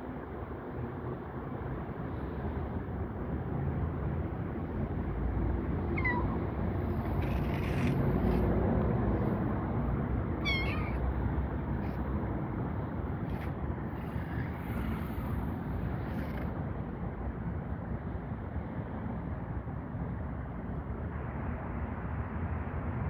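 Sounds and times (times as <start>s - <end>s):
kitten meowing: 5.8s - 8.5s, 10.4s - 11.2s.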